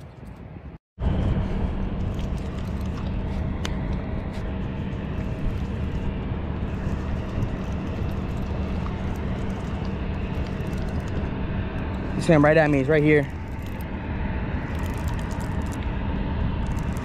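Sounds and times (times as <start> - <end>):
constant low rumble: 0.0 - 17.0
fishing reel gear whirring: 4.8 - 11.3, 12.0 - 13.9, 14.6 - 15.8, 16.6 - 17.0.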